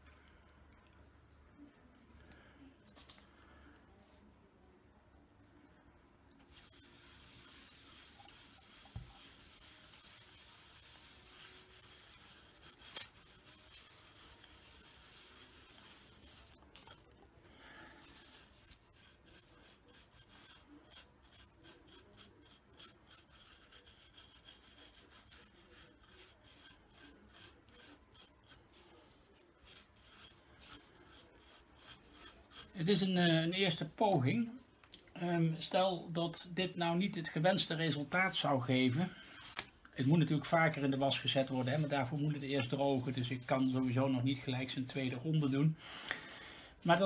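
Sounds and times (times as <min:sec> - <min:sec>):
cloth rubbing wax on wood: 0:06.5 - 0:17.1, 0:18.0 - 0:34.0, 0:38.3 - 0:45.8
toothbrush scrubbing: 0:06.5 - 0:17.2, 0:18.0 - 0:33.1, 0:38.3 - 0:47.0.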